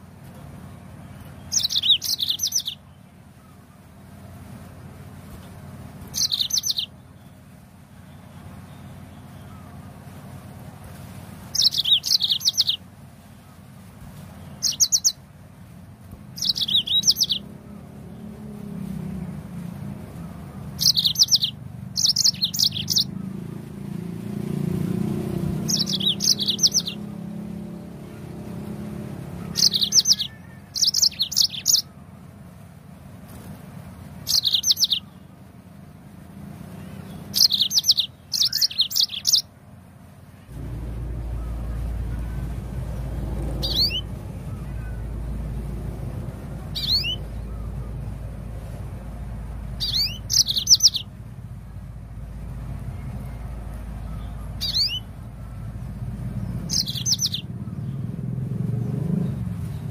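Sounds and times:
canary chirping: 1.2s - 3.0s, 6.0s - 7.3s, 11.5s - 12.8s, 14.4s - 15.2s, 16.3s - 17.7s, 20.6s - 23.6s, 24.9s - 27.8s, 28.8s - 32.0s, 34.2s - 35.2s, 37.0s - 39.5s, 40.6s - 58.1s.

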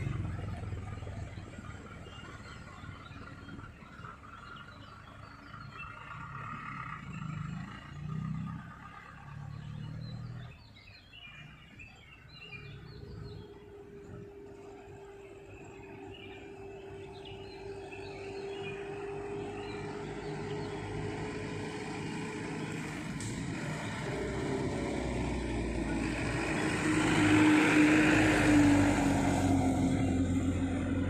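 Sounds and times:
car engine approaching: 0.0s - 31.0s
truck diesel engine and tyres: 0.0s - 31.0s.

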